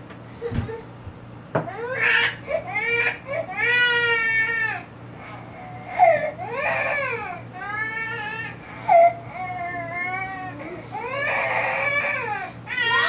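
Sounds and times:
baby crying: 0:01.7 - 0:04.8, 0:05.6 - 0:13.0.

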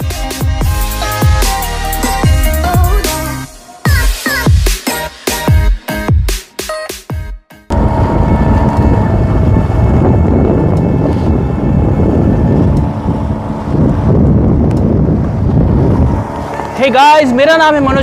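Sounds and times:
wind buffeting microphone: 0:07.7 - 0:18.0.

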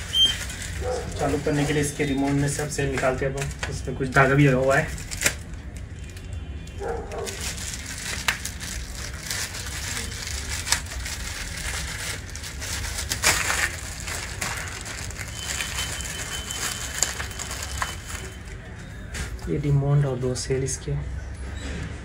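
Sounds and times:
plastic sheet crinkling: 0:00.0 - 0:20.4.

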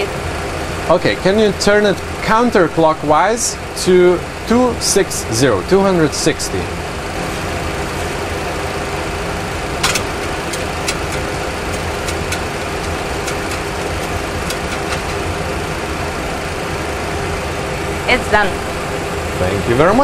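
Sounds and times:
steady engine-like drone: 0:00.0 - 0:20.0
knob turning clicks: 0:09.8 - 0:15.4.

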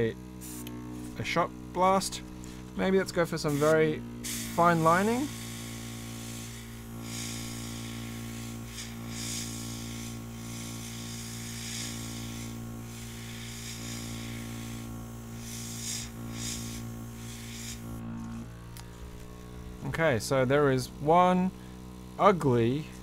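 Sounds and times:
small compressor humming: 0:00.0 - 0:23.0
airbrush spraying hiss: 0:00.4 - 0:01.2, 0:02.3 - 0:18.0.

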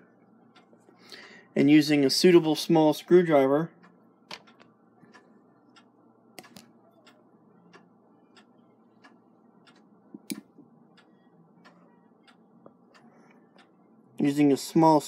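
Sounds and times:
small metallic clock clicks: 0:03.8 - 0:14.9.

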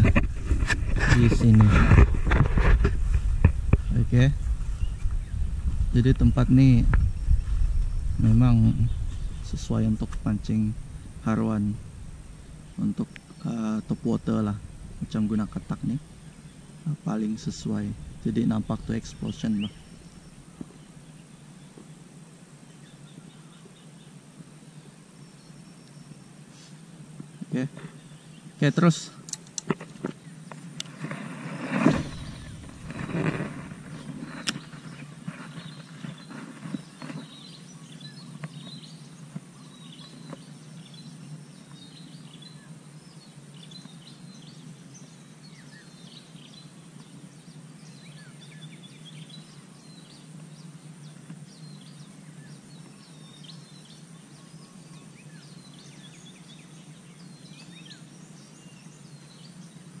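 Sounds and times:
low outdoor rumble: 0:00.0 - 0:26.3, 0:26.9 - 0:45.2
small birds chirping: 0:00.0 - 1:00.0.

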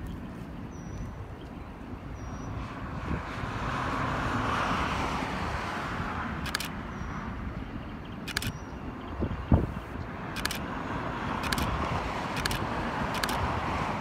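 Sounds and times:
wind rumble on microphone: 0:00.0 - 0:14.0
vehicle passing: 0:02.5 - 0:07.5, 0:09.6 - 0:14.0.

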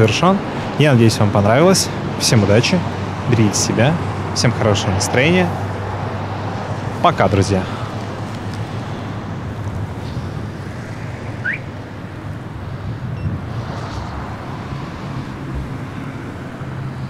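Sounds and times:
vehicle rumble: 0:00.0 - 0:17.0
wind: 0:00.0 - 0:17.0
rising chirp: 0:11.3 - 0:11.8.

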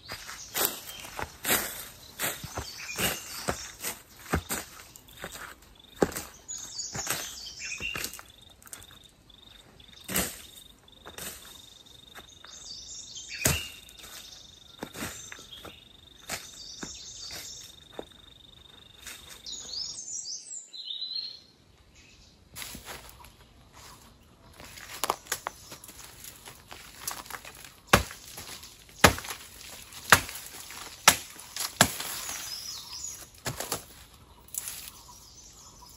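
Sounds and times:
blade hacking through brush: 0:00.0 - 0:08.2, 0:13.3 - 0:14.1, 0:24.9 - 0:34.9
insect droning: 0:00.0 - 0:20.0, 0:22.6 - 0:35.9
birds chirping: 0:00.0 - 0:35.9.

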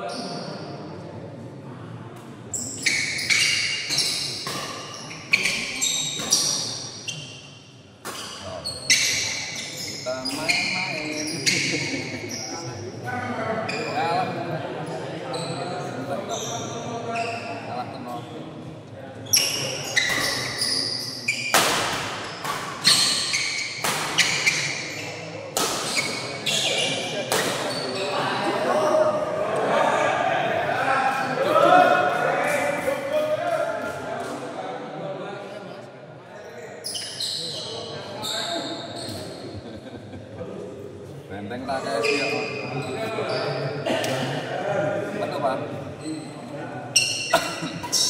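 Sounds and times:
shoes squeaking on court: 0:02.5 - 0:12.8, 0:13.6 - 0:14.2, 0:14.9 - 0:18.5, 0:19.2 - 0:28.2, 0:36.6 - 0:39.6, 0:41.8 - 0:43.8, 0:46.0 - 0:48.0.

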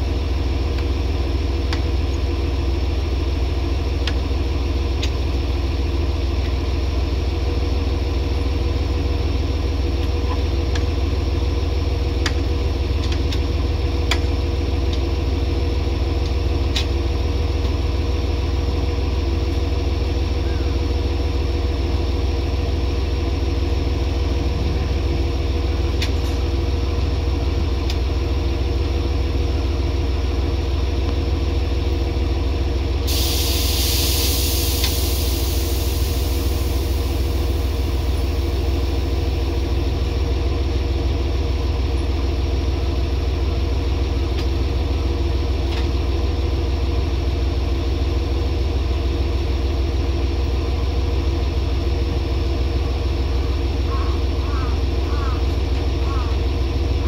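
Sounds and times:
diesel railcar engine idling: 0:00.0 - 0:57.0
compressed air hissing: 0:33.1 - 0:37.9.

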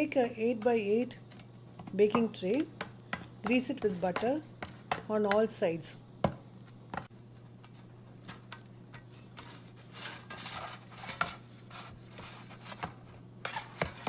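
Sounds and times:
butter scraping on metal tray: 0:09.2 - 0:14.0.

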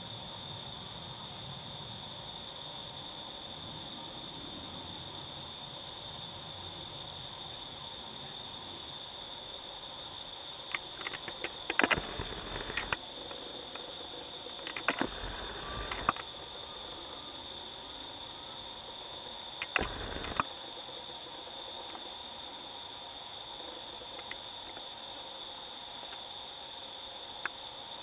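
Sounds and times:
high insect drone: 0:00.0 - 0:28.0
crackling clicks: 0:10.7 - 0:17.1, 0:19.6 - 0:22.2, 0:23.6 - 0:24.9.

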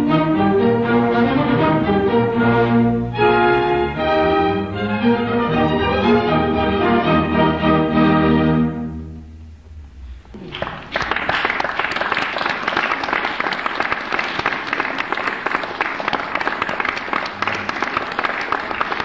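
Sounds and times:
string orchestra chord: 0:00.0 - 0:10.4
audience applause: 0:10.2 - 0:19.0.

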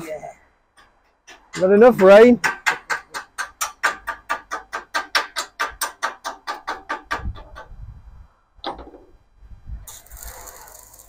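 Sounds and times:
welding arc crackling hiss: 0:09.8 - 0:11.0.

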